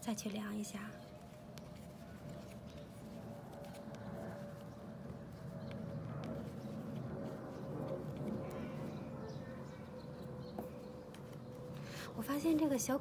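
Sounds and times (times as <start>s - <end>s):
soft rustle of yarn: 0.0s - 9.1s.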